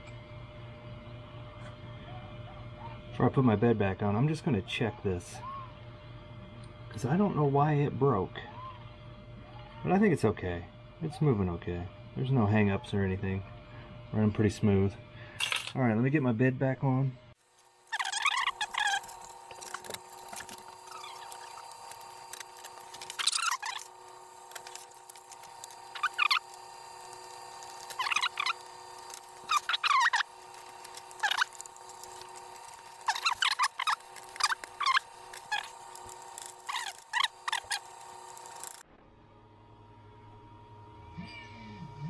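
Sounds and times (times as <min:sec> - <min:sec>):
printer fan humming: 0:16.0 - 0:38.8
high squeaky chirps: 0:17.9 - 0:23.9, 0:25.9 - 0:26.6, 0:27.9 - 0:32.3, 0:33.0 - 0:38.8.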